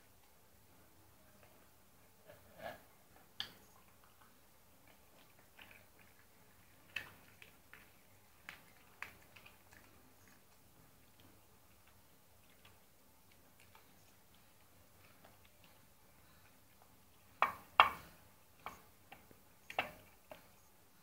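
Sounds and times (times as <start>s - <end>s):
dog chewing and licking: 3.8s - 17.4s.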